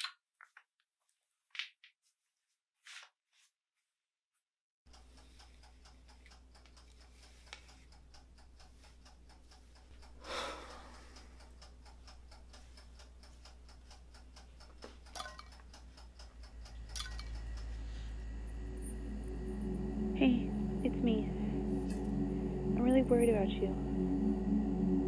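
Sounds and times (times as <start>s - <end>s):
clock ticking: 4.9s - 19.8s
low hum: 15.1s - 25.0s
deep rumble: 16.3s - 25.0s.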